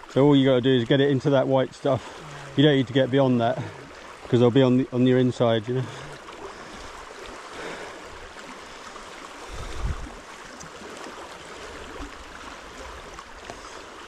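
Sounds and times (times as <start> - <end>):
river water rushing: 0.0 - 14.0.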